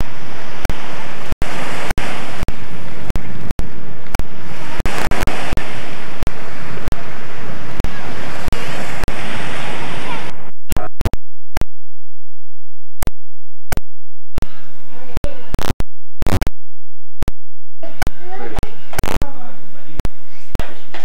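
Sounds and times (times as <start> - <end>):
waves washing onto sand: 0.0 - 10.8
wind on microphone: 0.0 - 11.1.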